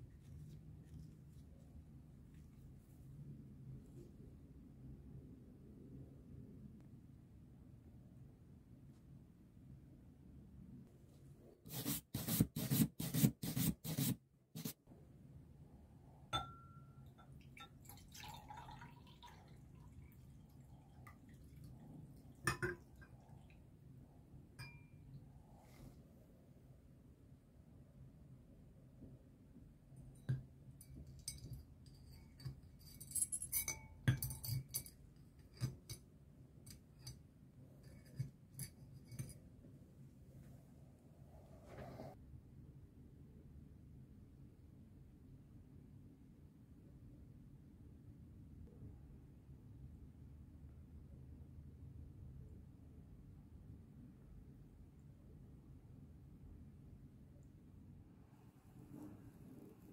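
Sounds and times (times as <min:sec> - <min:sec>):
glass beaker clinking: 0:16.3 - 0:19.4, 0:22.4 - 0:23.5, 0:24.6 - 0:25.1, 0:30.7 - 0:36.0
liquid pouring into beaker: 0:17.4 - 0:23.5.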